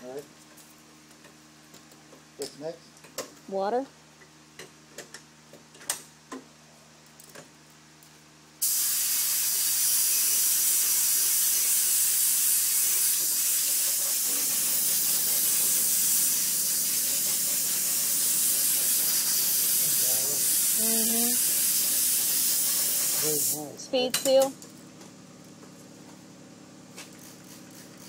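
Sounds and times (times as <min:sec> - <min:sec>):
spray gun hissing: 0:08.6 - 0:23.7.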